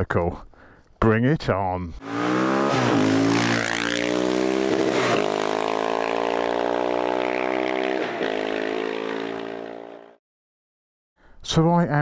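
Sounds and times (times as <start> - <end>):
motorcycle engine running: 2.0 - 10.1
motorcycles passing: 2.0 - 10.2.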